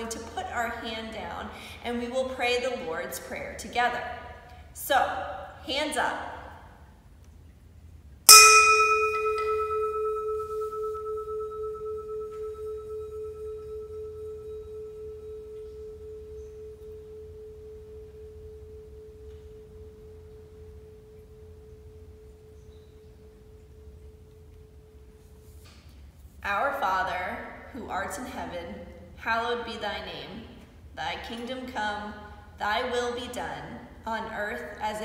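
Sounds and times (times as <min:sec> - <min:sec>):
singing bowl ringing: 0:08.3 - 0:25.3.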